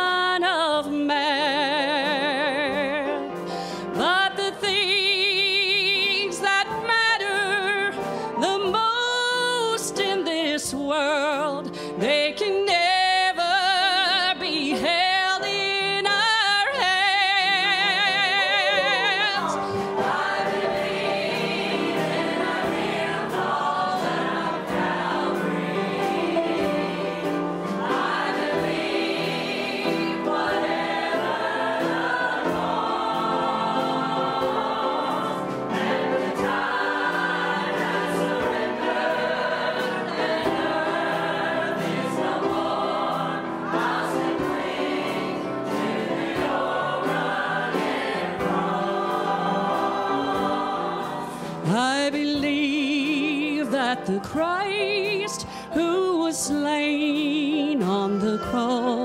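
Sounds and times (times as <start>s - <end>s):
church choir singing gospel: 0.0s - 59.0s.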